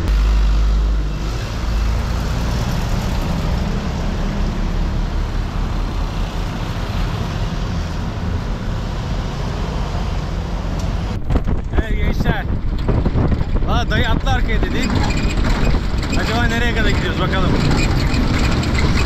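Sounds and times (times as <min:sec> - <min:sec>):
vehicle engine running: 0:00.0 - 0:11.7, 0:12.5 - 0:19.0
road and traffic noise: 0:00.0 - 0:19.0.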